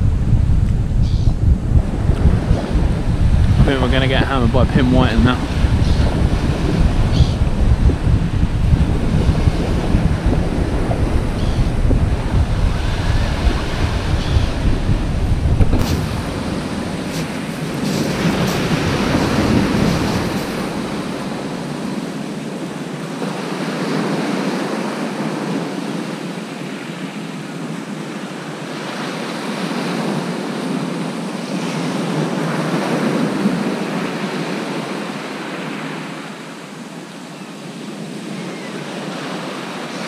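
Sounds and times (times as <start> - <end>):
wind buffeting microphone: 0.0 - 26.4
surf breaking on shingle: 15.6 - 21.3.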